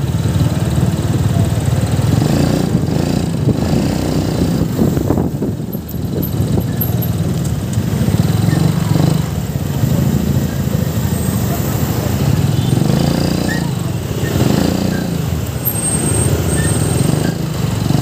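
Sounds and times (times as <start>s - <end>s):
wind rushing over microphone: 2.2s - 9.2s.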